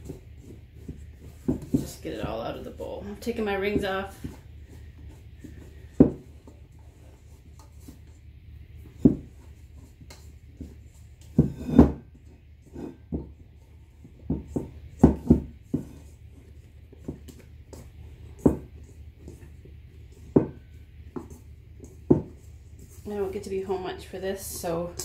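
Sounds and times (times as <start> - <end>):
hands scraping dough in metal bowl: 0.0 - 25.0.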